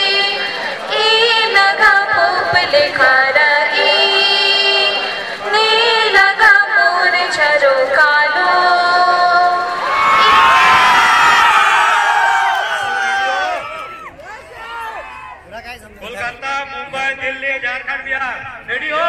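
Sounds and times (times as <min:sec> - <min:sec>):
girls singing over loudspeakers: 0:00.0 - 0:10.6.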